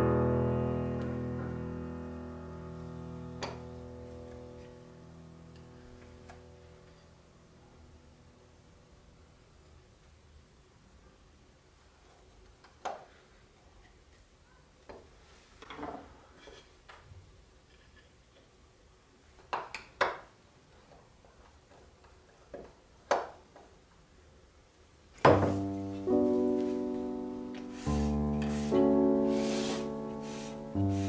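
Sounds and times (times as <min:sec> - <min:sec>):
knock on workbench: 0:25.2 - 0:25.6.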